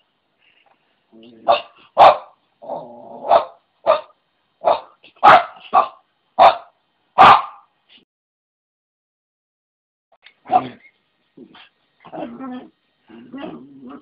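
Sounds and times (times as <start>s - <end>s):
small dog barking: 1.4s - 2.4s, 3.2s - 7.7s, 10.4s - 10.8s.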